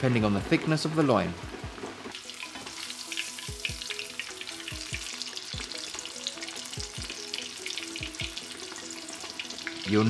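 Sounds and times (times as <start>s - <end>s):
background music with steady beat: 0.0s - 10.0s
cutlet deep-frying in oil: 2.0s - 10.0s.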